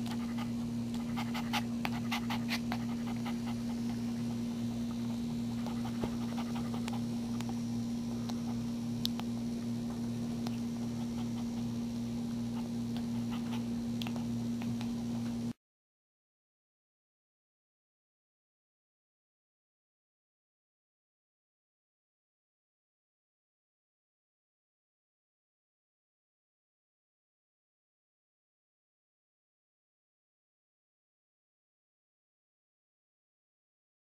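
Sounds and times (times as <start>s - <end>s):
steady low hum: 0.0s - 15.6s
puppy suckling wet clicks: 5.6s - 7.6s, 12.6s - 15.0s.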